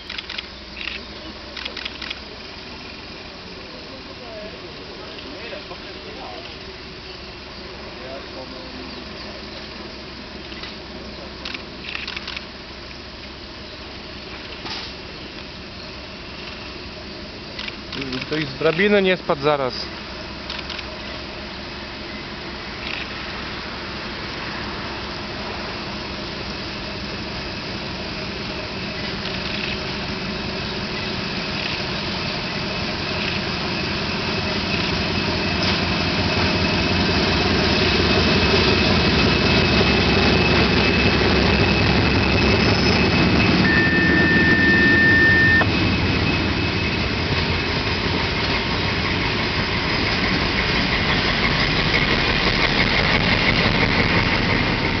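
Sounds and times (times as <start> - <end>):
diesel locomotive engines: 0.0 - 55.0
steady high tone: 36.2 - 50.7.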